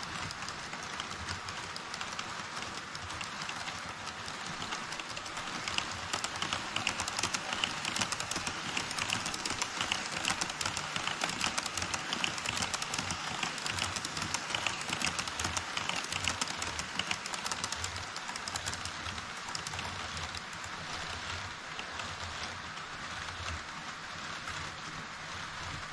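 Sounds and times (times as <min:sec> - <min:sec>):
model train wheels rattling on rails: 0:00.0 - 0:25.9.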